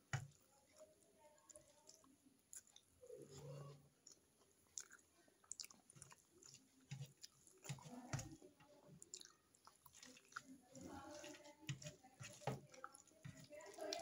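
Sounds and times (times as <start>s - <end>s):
close-up chewing: 0.0s - 14.0s
wet mouth clicks and smacks: 4.8s - 6.5s.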